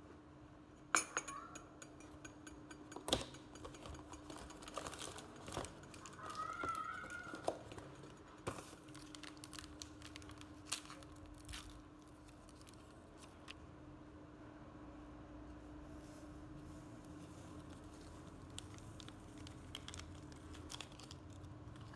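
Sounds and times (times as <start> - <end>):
faint steady hum: 0.0 - 21.9
cardboard box crinkling: 4.4 - 13.5.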